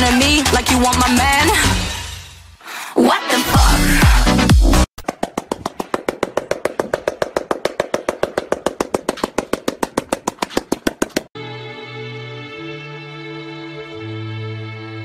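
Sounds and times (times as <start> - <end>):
dog tail knocking on concrete: 5.0 - 11.3.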